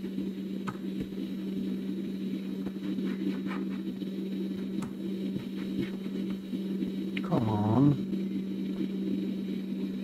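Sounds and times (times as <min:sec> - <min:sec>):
hot air blower hum: 0:00.0 - 0:10.0.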